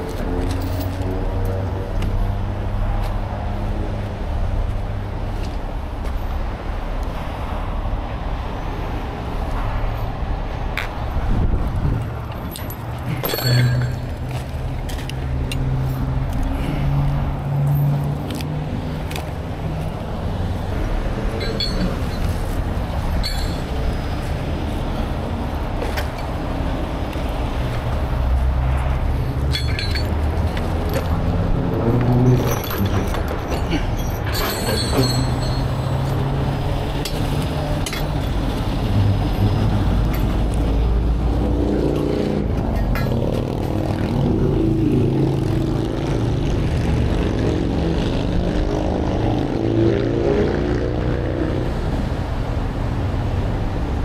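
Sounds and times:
passing freeway traffic: 0.0 - 54.0
engine humming: 10.7 - 49.5
tow chain clinking: 12.3 - 15.1, 21.1 - 24.3, 28.9 - 38.6.

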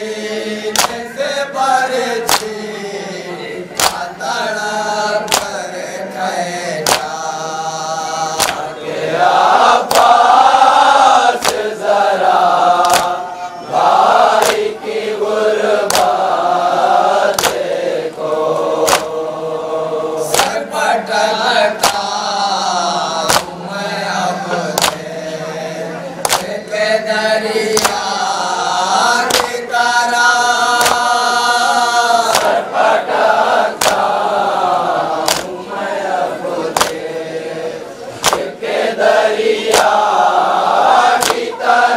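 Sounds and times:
men chanting a lament in unison: 0.0 - 41.9
chest-beating slaps: 0.7 - 1.2, 2.2 - 2.6, 3.7 - 4.2, 5.2 - 5.7, 6.8 - 7.2, 8.3 - 8.8, 9.8 - 10.4, 11.3 - 11.8, 12.8 - 13.2, 14.3 - 14.8, 15.8 - 16.3, 17.3 - 17.8, 18.8 - 19.2, 20.2 - 20.6, 21.8 - 22.2, 23.2 - 23.6, 24.5 - 25.2, 26.2 - 26.7, 27.7 - 28.1, 29.2 - 29.7, 30.7 - 31.2, 32.2 - 32.7, 33.7 - 34.3, 35.2 - 35.6, 36.6 - 37.1, 38.2 - 38.6, 39.6 - 40.1, 41.1 - 41.6.

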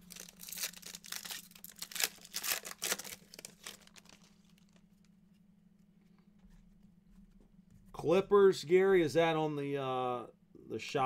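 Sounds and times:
foil wrapper crinkling and tearing: 0.0 - 4.8
cards rustling and clicking: 0.0 - 5.1.

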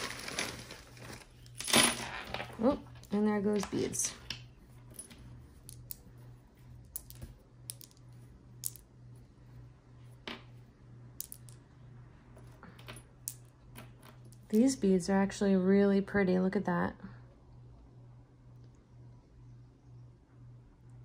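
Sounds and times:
beads clicking on tabletop: 3.0 - 6.1, 6.9 - 8.9, 11.2 - 11.6.

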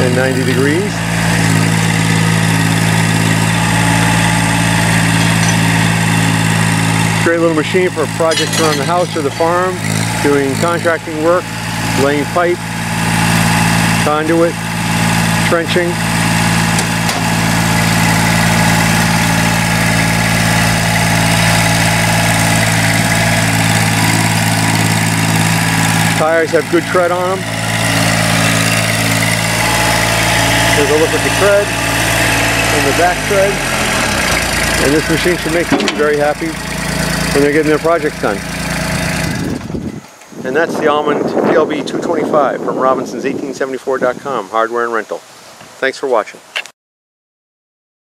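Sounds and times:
diesel engine running: 0.0 - 41.3.

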